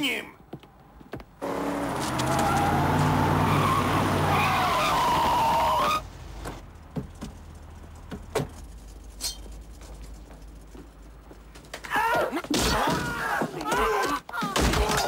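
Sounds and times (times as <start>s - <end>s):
scuffle with yelling: 1.9s - 6.0s, 11.8s - 15.0s.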